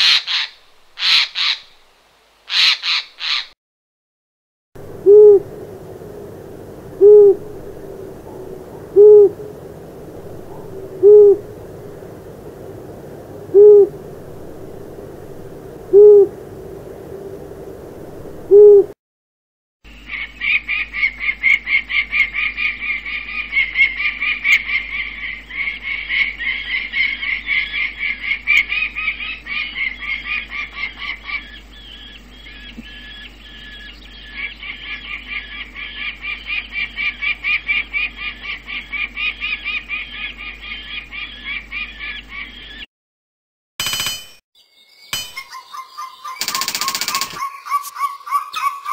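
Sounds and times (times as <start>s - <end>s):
falcon rapid repeated call: 0.0s - 1.7s, 2.5s - 3.5s, 45.4s - 48.9s
owl hooting: 0.0s - 1.8s, 2.5s - 3.5s, 4.8s - 19.0s, 20.1s - 42.8s, 45.4s - 48.9s.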